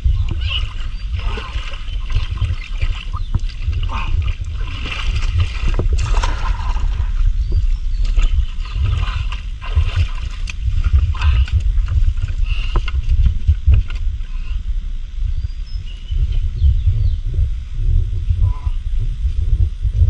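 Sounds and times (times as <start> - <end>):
feet splashing through muddy water: 0.0 - 14.6
low rumble: 0.0 - 20.0.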